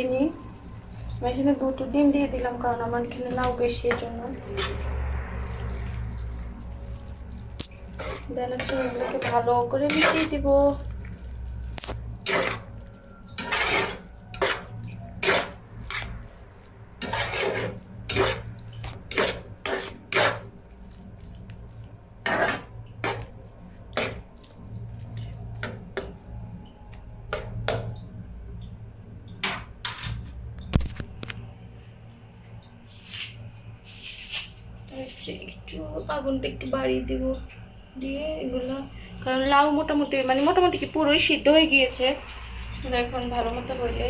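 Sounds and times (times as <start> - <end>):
spatula scraping frying pan: 3.3 - 5.0, 7.7 - 10.8, 11.8 - 12.7, 13.3 - 16.4, 17.0 - 20.5, 22.2 - 24.2.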